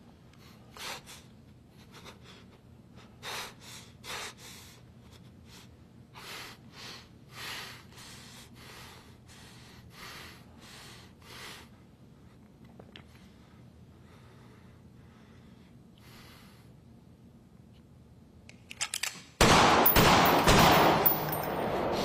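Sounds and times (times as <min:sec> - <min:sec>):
low steady hum: 0:00.0 - 0:22.0
man breathing heavily: 0:00.4 - 0:12.5, 0:13.1 - 0:16.8.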